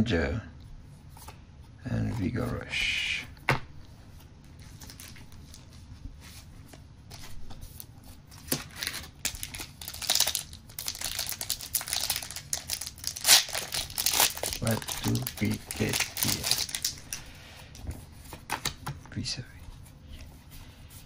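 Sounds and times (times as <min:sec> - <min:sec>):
foil wrapper crinkling: 0:04.6 - 0:05.7, 0:08.4 - 0:17.3.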